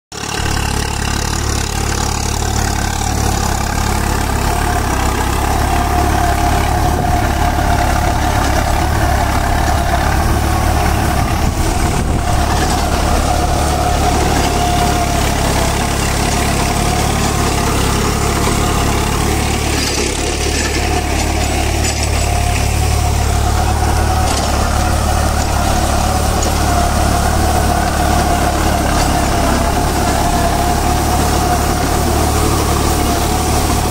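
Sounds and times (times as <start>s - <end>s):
rotavator whine: 0.1s - 33.9s
tractor diesel engine running: 0.1s - 33.9s.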